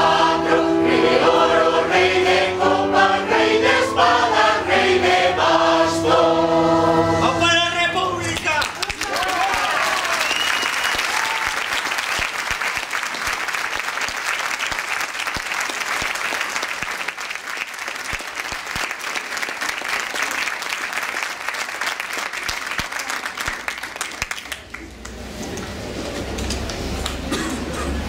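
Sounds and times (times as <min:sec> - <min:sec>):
audience applauding: 0:08.2 - 0:27.7.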